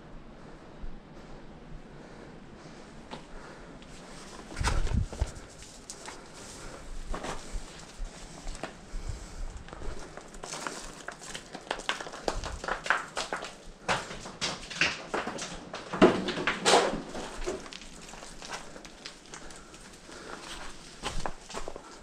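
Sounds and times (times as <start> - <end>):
scuffs and scrapes on rock: 4.0 - 15.5, 17.0 - 22.0.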